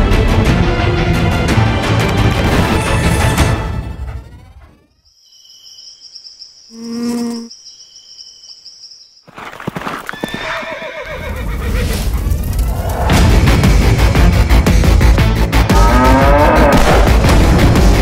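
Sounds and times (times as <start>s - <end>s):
horses galloping: 9.3s - 12.8s
horse whinnying: 10.0s - 11.9s.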